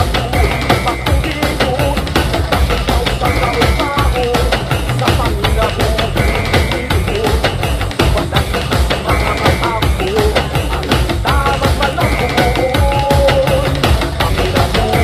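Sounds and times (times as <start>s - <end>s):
drum kit beat: 0.0s - 15.0s
wavering melody line: 0.0s - 15.0s.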